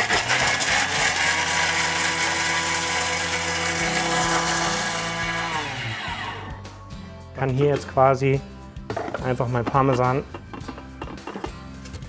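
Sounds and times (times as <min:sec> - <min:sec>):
food processor blades whirring: 0:00.0 - 0:06.6.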